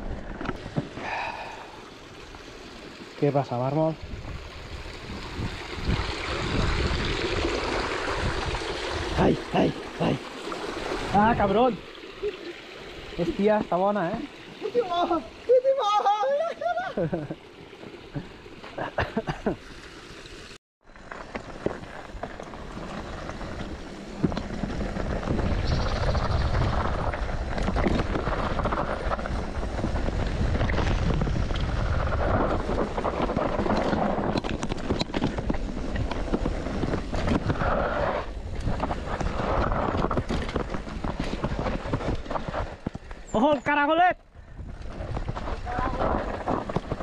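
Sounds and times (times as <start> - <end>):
wind rumble on microphone: 4.0 - 9.7, 21.8 - 43.2, 44.3 - 47.0
bike tyre noise: 20.8 - 47.0
bike clattering over rough ground: 20.9 - 43.6, 44.6 - 47.0.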